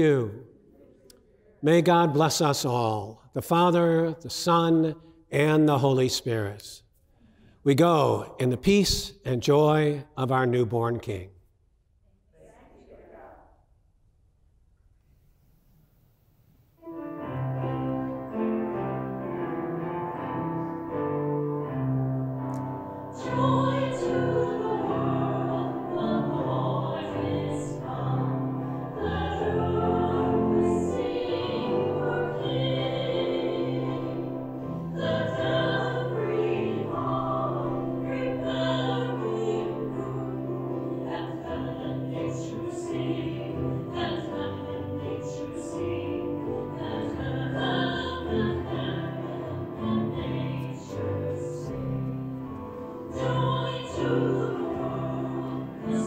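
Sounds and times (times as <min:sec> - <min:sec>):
piano: 0:16.8 - 0:56.0
cello: 0:17.3 - 0:56.0
voices singing a hymn: 0:22.3 - 0:56.0.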